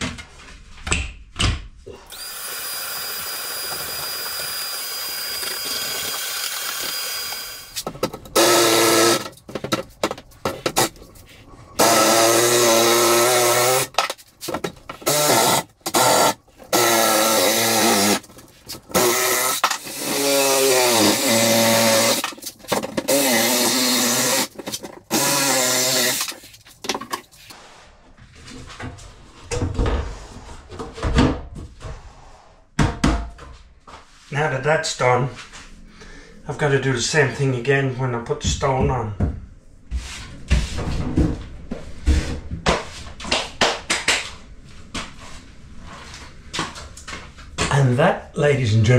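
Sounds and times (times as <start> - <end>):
cordless drill running: 2.1 - 7.8, 8.4 - 9.3, 11.8 - 13.9, 15.0 - 18.2, 18.9 - 22.3, 23.0 - 26.4.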